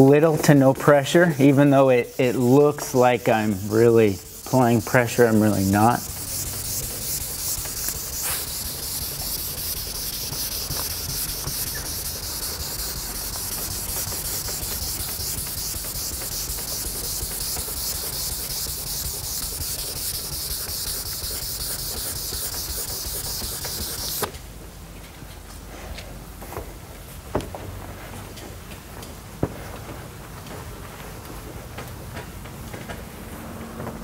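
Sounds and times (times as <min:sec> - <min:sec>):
sandpaper hissing on paint: 0:00.0 - 0:24.3.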